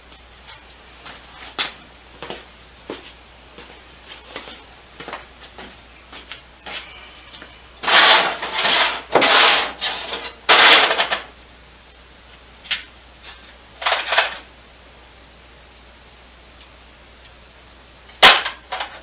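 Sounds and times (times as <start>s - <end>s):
scraping and rubbing: 6.7s - 11.2s.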